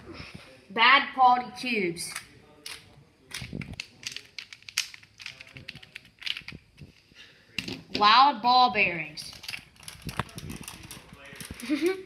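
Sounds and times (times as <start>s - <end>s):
plastic puzzle cube clacking: 2.1s - 6.9s, 9.3s - 11.7s.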